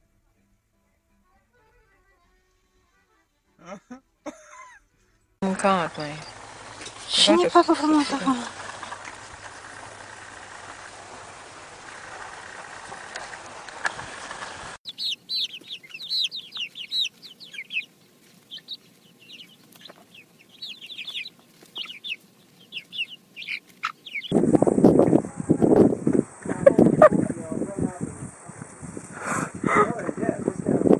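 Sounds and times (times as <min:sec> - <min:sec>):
chicks peeping and chirping: 0:14.8 - 0:27.5.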